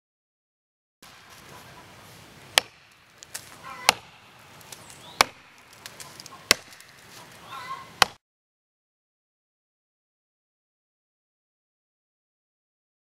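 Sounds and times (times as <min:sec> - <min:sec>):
axe chopping tree trunk: 0:02.5 - 0:07.1, 0:08.0 - 0:08.2.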